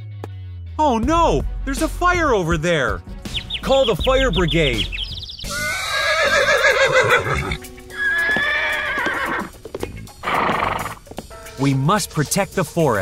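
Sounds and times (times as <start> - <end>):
background music: 0.0 - 13.0
wavering animal call: 5.0 - 9.5.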